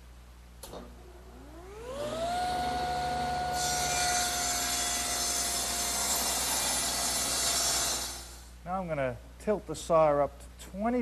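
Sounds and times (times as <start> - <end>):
table saw whining: 1.3 - 8.4
saw blade cutting wood: 2.8 - 8.4.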